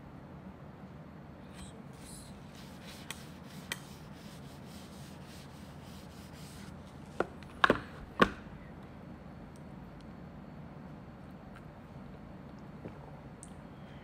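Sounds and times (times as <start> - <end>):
tissue wiping plastic box: 2.4 - 7.3.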